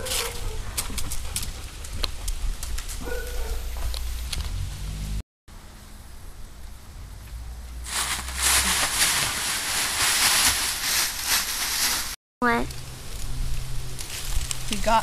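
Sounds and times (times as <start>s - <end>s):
dry leaves crunching underfoot: 7.8s - 12.2s, 13.0s - 15.0s.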